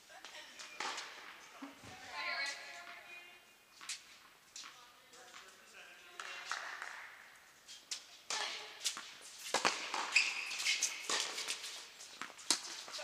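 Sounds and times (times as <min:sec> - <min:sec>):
short high squeak: 0:10.1 - 0:11.1.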